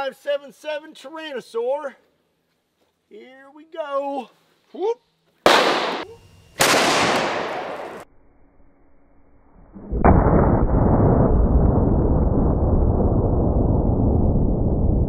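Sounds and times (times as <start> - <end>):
gunshot bang: 5.5 - 8.0, 10.0 - 11.3
loud blast: 5.5 - 8.1, 9.8 - 15.0
deep muffled rumble: 10.0 - 15.0.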